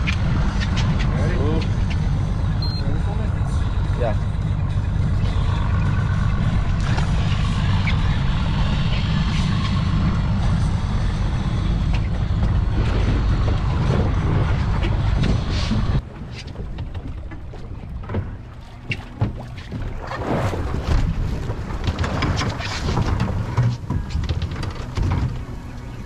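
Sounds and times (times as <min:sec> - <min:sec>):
wind rumble on microphone: 0:00.0 - 0:26.0
water splashing: 0:11.9 - 0:26.0.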